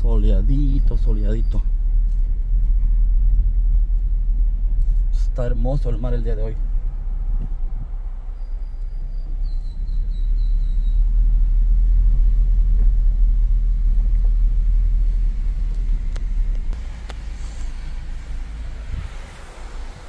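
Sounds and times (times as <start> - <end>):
car driving on gravel road: 0.0 - 20.0.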